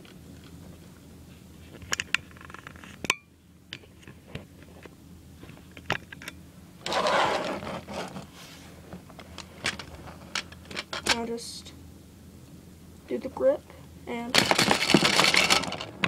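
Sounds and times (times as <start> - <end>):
rustling: 6.8 - 10.3.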